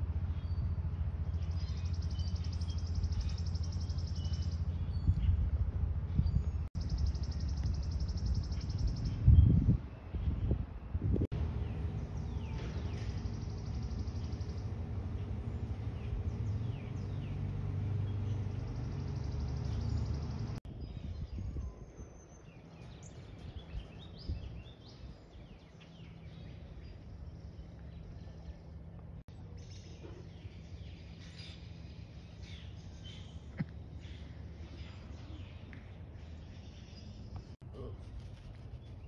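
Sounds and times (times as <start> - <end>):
low rumble: 0.0 - 21.6
small birds chirping: 0.2 - 39.0.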